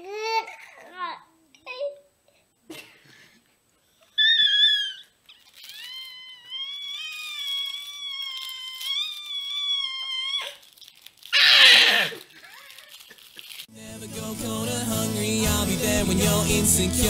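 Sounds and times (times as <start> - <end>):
baby squealing: 4.0 - 13.1.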